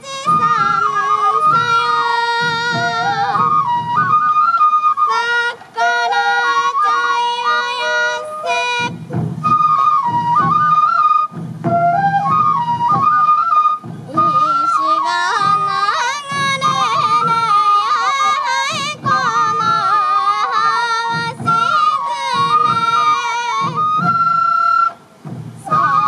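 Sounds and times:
bamboo flute melody: 0.0s - 26.0s
taiko drums beating: 0.0s - 26.0s
person singing: 14.2s - 23.8s.

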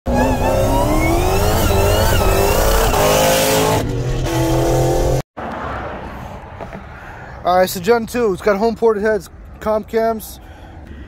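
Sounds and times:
car engine accelerating: 0.1s - 5.7s
road noise: 0.1s - 11.0s.

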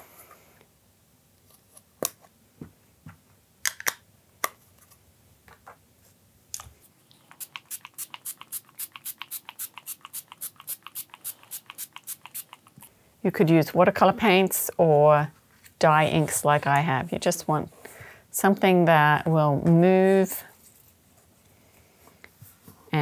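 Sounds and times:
water mister spraying: 7.3s - 12.7s.

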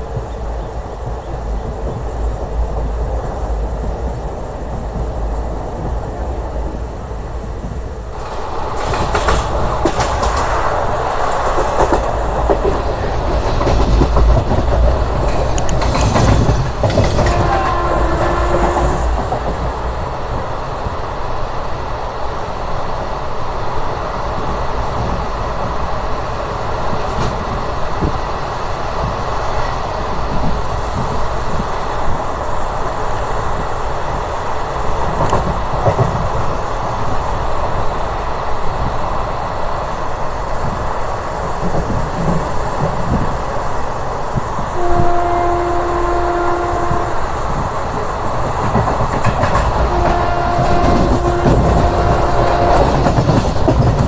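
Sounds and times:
wheels clicking over rail joints: 0.0s - 20.5s, 47.4s - 54.0s
rushing air: 0.0s - 54.0s
train wheels rumbling on rails: 0.0s - 54.0s.

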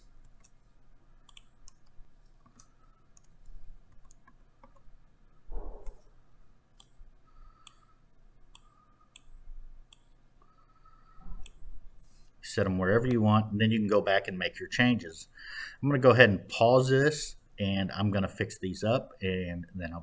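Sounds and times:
computer mouse clicks: 0.2s - 0.6s, 1.2s - 4.9s, 5.7s - 6.1s, 6.8s - 7.0s, 7.6s - 7.9s, 8.5s - 10.5s, 11.3s - 11.6s.

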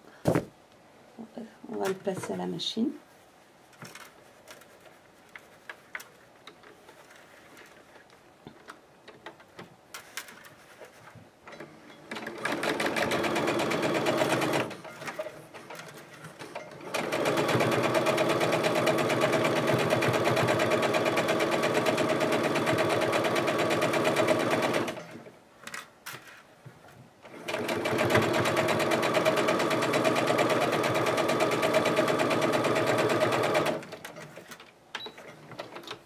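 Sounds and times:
sewing machine stitching: 12.1s - 25.2s, 27.2s - 34.4s.

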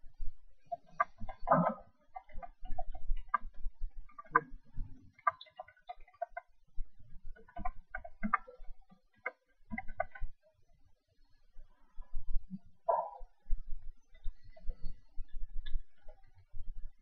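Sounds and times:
light clicks and taps: 7.3s - 10.3s, 14.1s - 16.4s.

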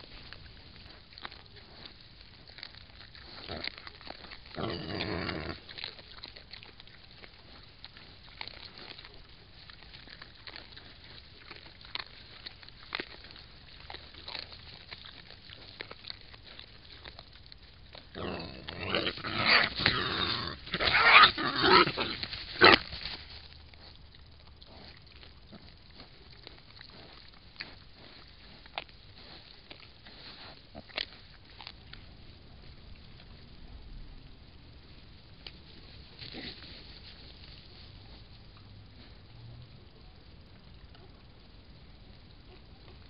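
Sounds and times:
wild boars squealing and grunting: 18.1s - 22.9s.

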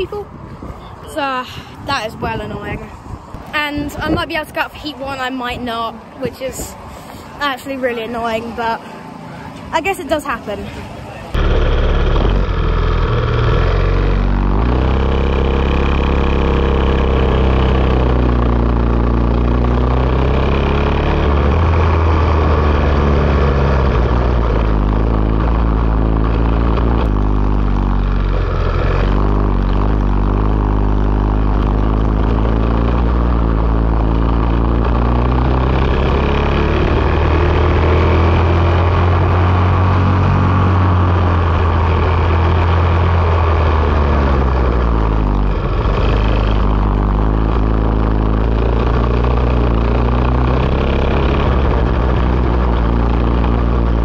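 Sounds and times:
kart engine revving: 11.2s - 54.0s.

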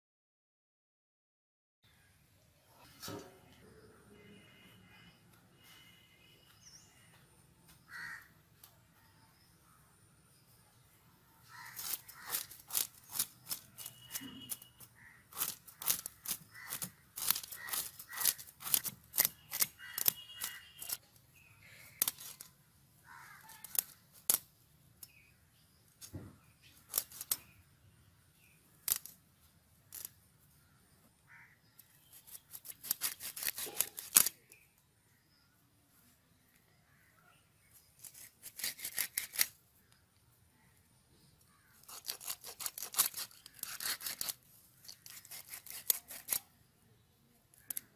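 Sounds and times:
fish scraped against blade: 11.6s - 21.0s, 32.1s - 34.3s, 38.0s - 39.6s, 41.8s - 46.5s.

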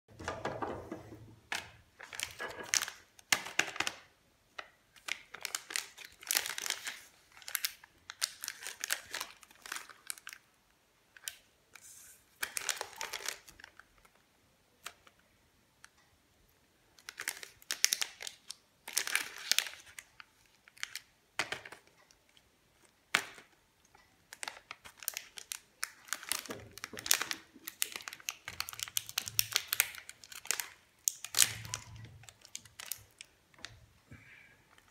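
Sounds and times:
plastic wrapper crinkling: 1.5s - 10.5s, 11.1s - 14.2s, 17.0s - 23.6s, 24.3s - 33.9s
plastic wrapper tearing: 1.6s - 10.4s, 11.2s - 14.2s, 17.0s - 21.9s, 24.3s - 33.8s.

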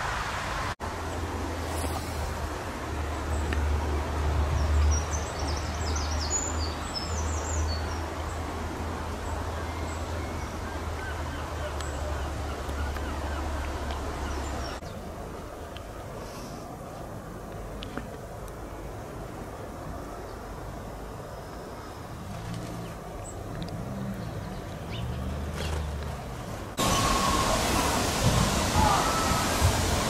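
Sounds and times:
hiss of noise: 0.0s - 3.7s, 16.0s - 17.2s, 26.7s - 30.0s.

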